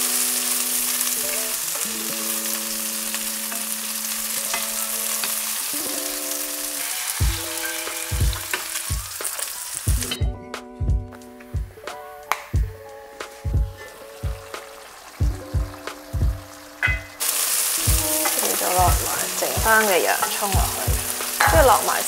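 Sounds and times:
food sizzling in hot oil: 0:00.0 - 0:10.3, 0:11.2 - 0:22.0
background music: 0:00.0 - 0:22.0
thumping beat: 0:07.2 - 0:09.3, 0:09.9 - 0:17.2, 0:17.8 - 0:22.0.

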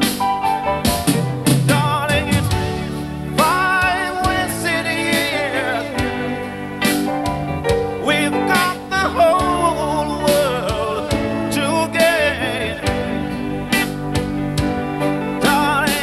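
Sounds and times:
live band with electric guitar: 0:00.0 - 0:16.0
man singing long wavering notes: 0:08.0 - 0:12.9.

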